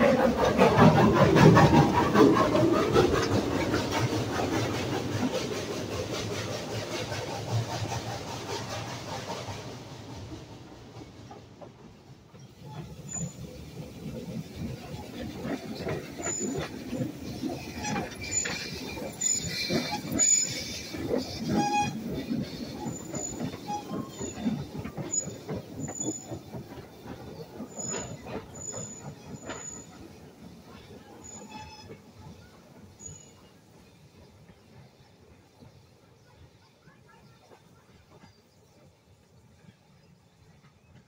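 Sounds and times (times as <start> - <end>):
train wheels clattering over rails: 0.0 - 41.0
wheel squeals: 12.4 - 13.6, 15.4 - 34.0.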